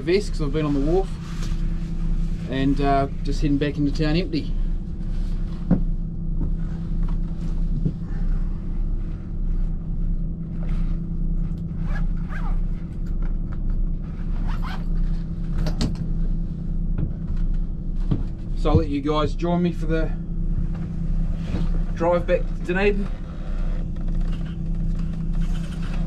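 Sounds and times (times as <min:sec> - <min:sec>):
diesel engine idling: 0:00.0 - 0:11.8, 0:14.9 - 0:26.0.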